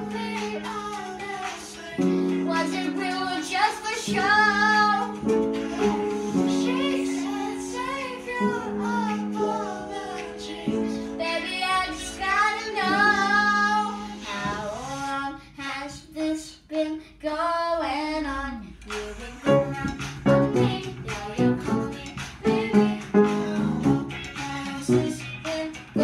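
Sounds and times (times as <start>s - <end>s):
piano accompaniment: 0.0s - 14.7s, 19.4s - 24.3s, 24.9s - 25.4s
girl singing pop song: 0.0s - 26.0s.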